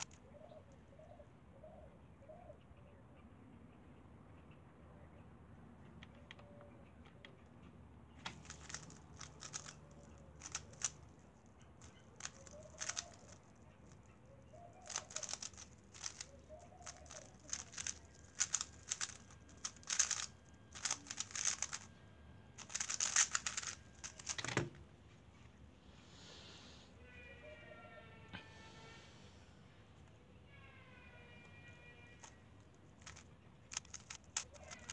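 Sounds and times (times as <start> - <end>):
plastic puzzle cube clicking: 8.2 - 11.0, 11.8 - 14.0, 14.8 - 21.9, 22.6 - 24.7, 32.2 - 34.9.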